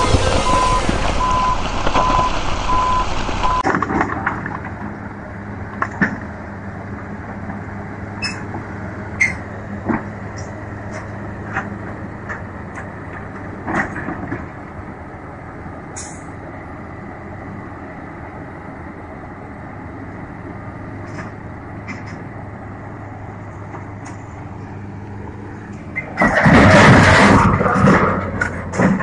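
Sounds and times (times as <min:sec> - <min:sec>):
excavator crashing over: 0:00.0 - 0:04.9, 0:25.9 - 0:29.0
diesel engine idling: 0:00.0 - 0:13.7, 0:14.4 - 0:26.2.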